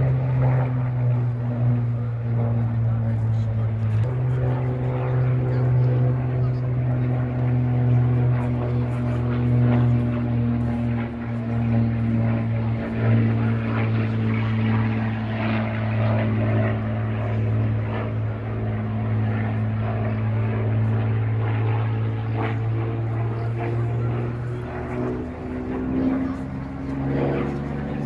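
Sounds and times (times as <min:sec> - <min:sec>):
propeller aircraft droning: 0:00.0 - 0:28.0.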